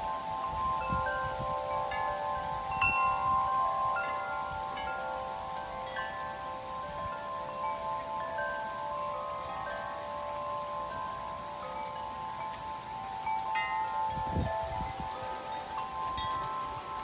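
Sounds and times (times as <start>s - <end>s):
wind buffeting microphone: 0.0s - 8.2s, 12.5s - 17.0s
wind chimes ringing: 0.0s - 17.0s.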